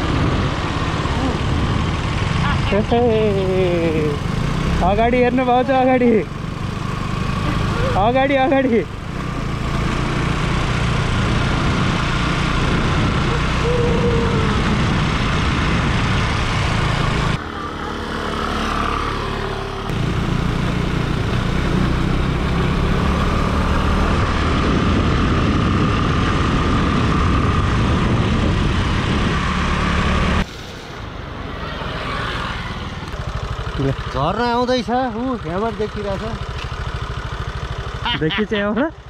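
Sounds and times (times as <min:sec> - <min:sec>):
motorcycle engine running: 0:00.0 - 0:30.4, 0:32.6 - 0:39.0
wind rush on microphone: 0:11.0 - 0:17.4, 0:23.5 - 0:30.5.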